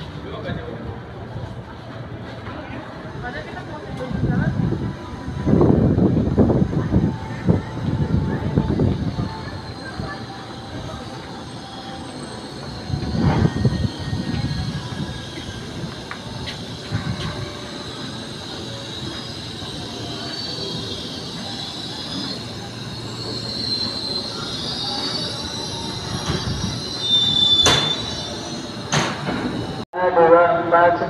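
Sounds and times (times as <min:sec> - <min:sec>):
train rumble: 0:00.0 - 0:31.0
train wheels squealing: 0:07.0 - 0:29.8.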